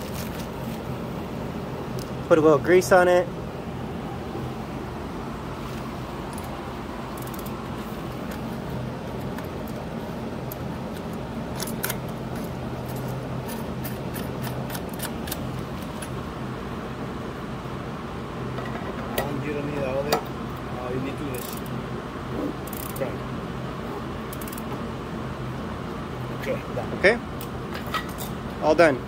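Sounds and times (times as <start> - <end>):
steady low hum: 0.0 - 29.0
metallic clicks of bicycle sprockets: 22.7 - 23.1.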